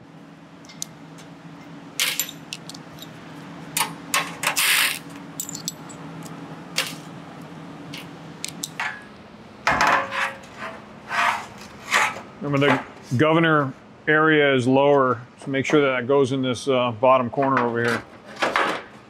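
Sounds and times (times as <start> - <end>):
faint steady hum: 0.0 - 19.0
nuts and bolts clinking: 2.0 - 3.2, 3.8 - 7.0, 7.9 - 10.4.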